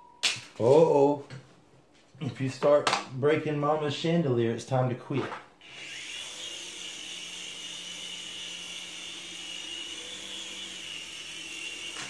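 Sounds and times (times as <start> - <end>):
toy helicopter motors whining: 5.6 - 12.0.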